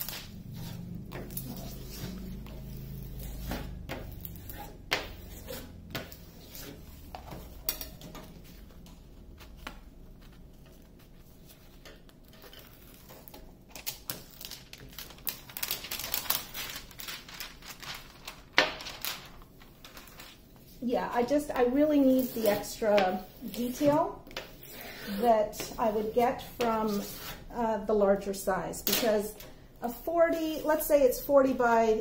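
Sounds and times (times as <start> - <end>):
canvas rustling and crinkling: 14.4 - 21.0.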